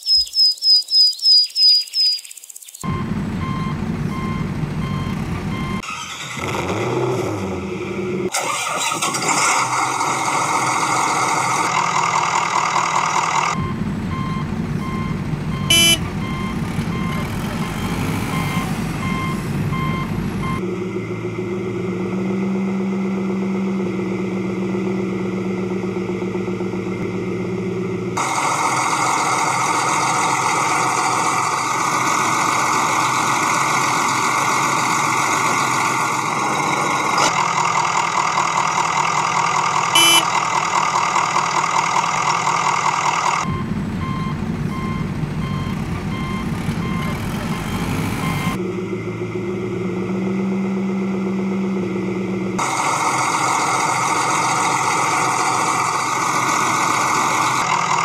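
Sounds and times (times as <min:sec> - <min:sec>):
reversing beeps: 0:02.8 - 0:05.8, 0:13.6 - 0:20.6, 0:40.0 - 0:40.3, 0:43.5 - 0:48.6
vehicle engine: 0:02.8 - 0:58.0.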